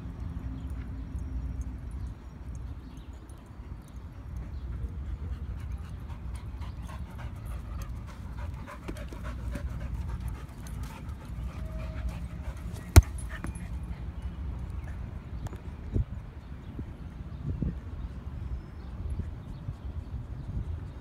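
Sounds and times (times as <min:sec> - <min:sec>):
dog panting: 0:04.8 - 0:14.1
ball kicked thump: 0:12.8 - 0:13.5.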